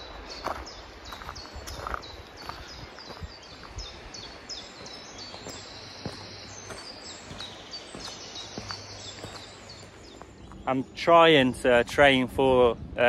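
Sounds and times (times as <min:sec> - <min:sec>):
faint footsteps on path: 0:00.0 - 0:12.6
small birds chirping: 0:00.0 - 0:13.0.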